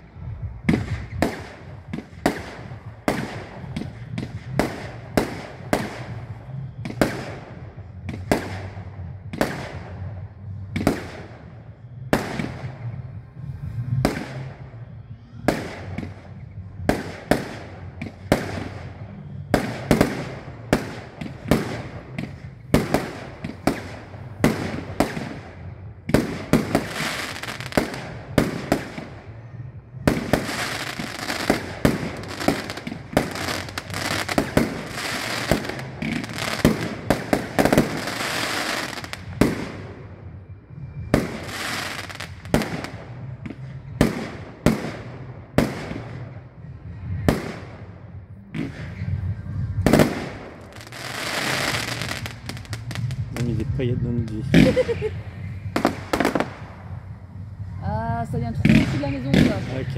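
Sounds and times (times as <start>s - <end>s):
firework crackle: 15.4s - 29.2s, 30.1s - 40.0s, 41.1s - 46.3s, 48.6s - 59.9s.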